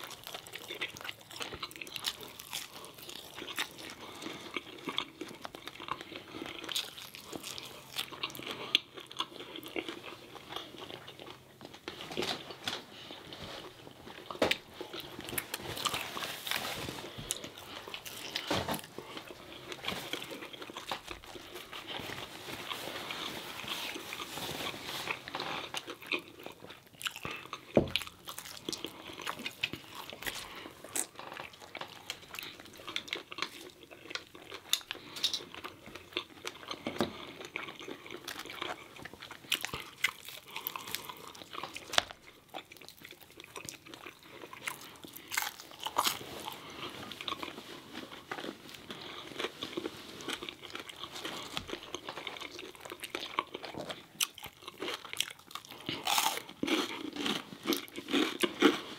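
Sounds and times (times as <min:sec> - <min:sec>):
crunching bites of fried chicken: 0:52.4 - 0:58.8.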